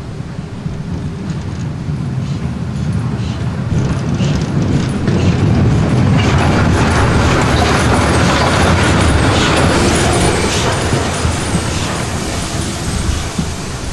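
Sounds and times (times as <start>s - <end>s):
train rumbling past: 0.0s - 13.9s.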